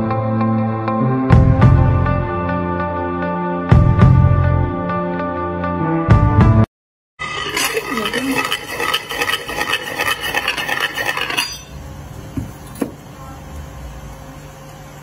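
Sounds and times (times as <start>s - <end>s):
metal disc scraping rice grains: 7.2s - 11.8s.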